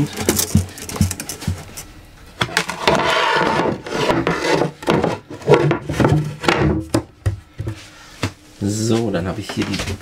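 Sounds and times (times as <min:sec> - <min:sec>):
wood scraping on wood: 0:02.5 - 0:06.6.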